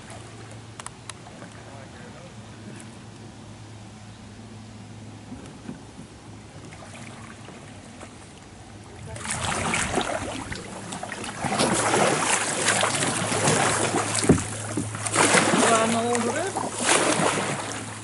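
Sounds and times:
kayak paddles splashing water: 5.5s - 18.0s.

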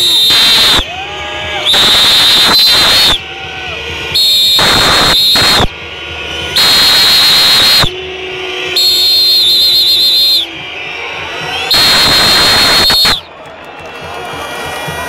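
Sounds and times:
stadium crowd surging: 0.0s - 15.0s
shrill whistling tone: 1.6s - 3.2s, 4.2s - 5.7s, 6.6s - 8.0s, 8.7s - 10.6s, 11.4s - 13.3s.

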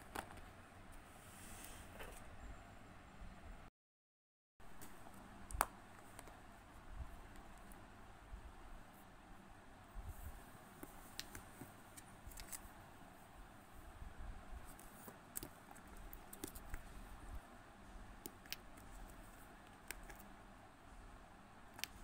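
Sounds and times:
steady low hiss: 4.7s - 22.0s.

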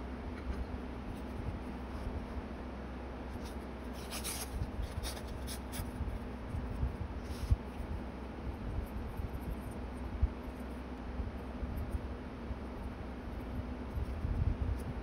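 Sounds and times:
paper rustling: 3.4s - 5.9s.

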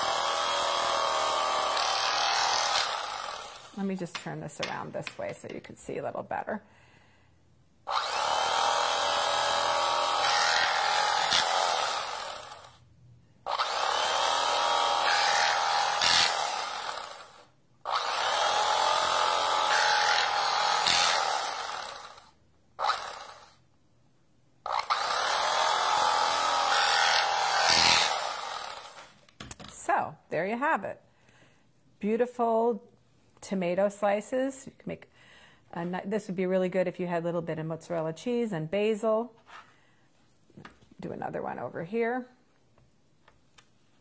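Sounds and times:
electric carving knife motor whine: 0.0s - 3.8s, 7.9s - 12.7s, 13.5s - 23.5s, 24.7s - 29.1s.

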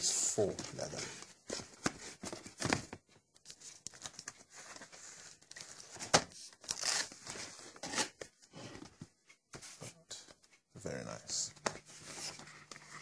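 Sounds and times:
paper rustling and scraping: 3.5s - 10.0s, 11.6s - 13.0s.

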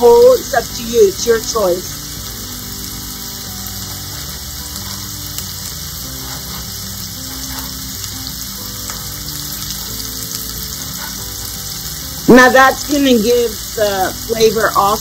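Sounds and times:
soft background music: 0.0s - 15.0s
vegetables sizzling in a pan: 0.0s - 15.0s.

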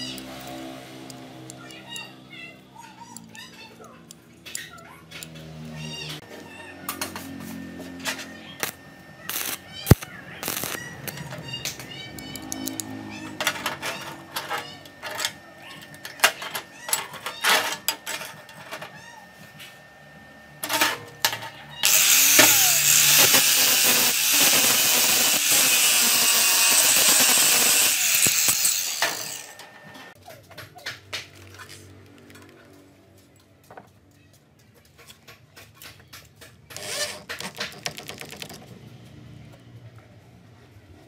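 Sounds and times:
welding arc crackling hiss: 8.6s - 11.1s, 21.8s - 29.5s.

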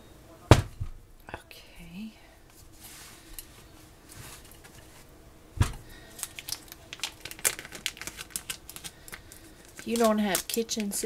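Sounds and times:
loud thump: 0.5s - 1.0s, 5.6s - 5.8s
scissors snipping plastic bag: 6.1s - 11.0s.

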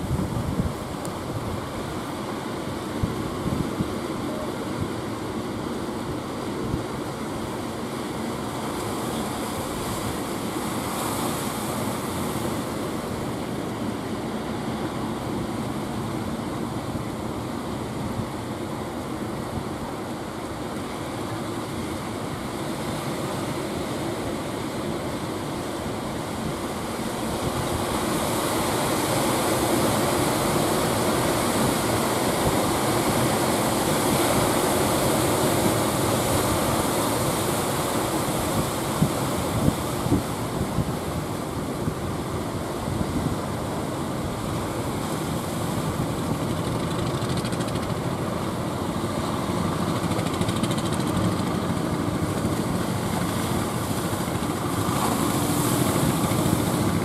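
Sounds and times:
wind buffeting microphone: 0.0s - 1.7s
sea surf breaking: 0.0s - 57.0s
boat engine running: 45.7s - 57.0s.

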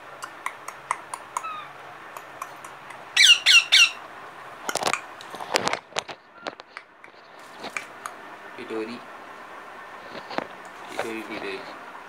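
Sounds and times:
parrot squawking: 0.1s - 4.0s.

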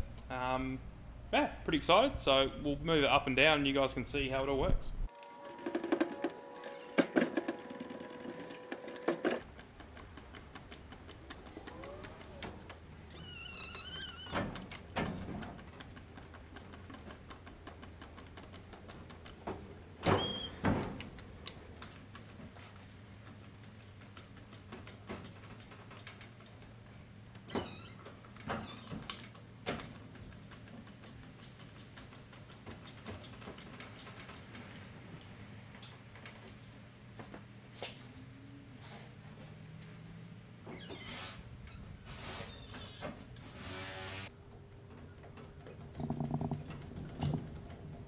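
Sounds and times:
short squeak: 40.7s - 44.1s.

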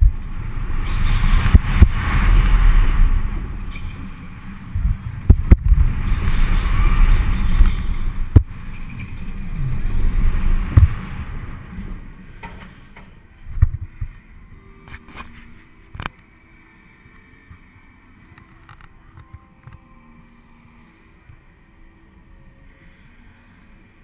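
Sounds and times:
rush of wind: 0.0s - 15.4s
low track rumble: 0.0s - 16.1s.

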